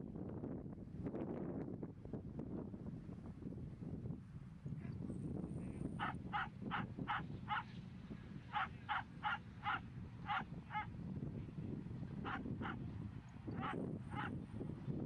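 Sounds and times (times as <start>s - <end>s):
low wind rumble: 0.0s - 15.0s
short harsh animal calls: 8.6s - 10.8s.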